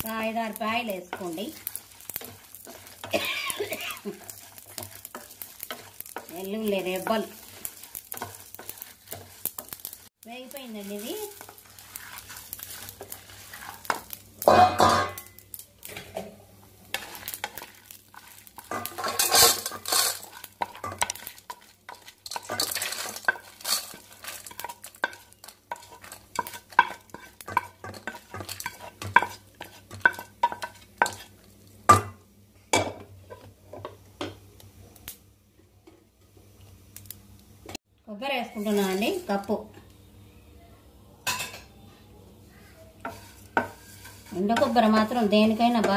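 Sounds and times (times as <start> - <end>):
dry lentils scraped and rattling: 0.9 - 14.6, 16.9 - 31.3, 43.1 - 45.3.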